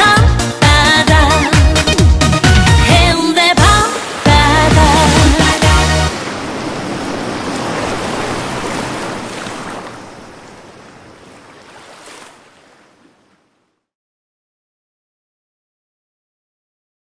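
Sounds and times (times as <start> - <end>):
ocean surf washing on shore: 2.9 - 13.6.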